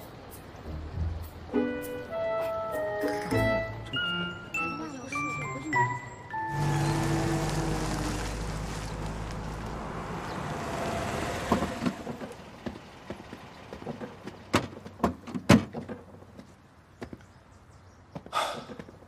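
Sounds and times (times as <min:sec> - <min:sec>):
car pulling up: 0:06.3 - 0:16.5.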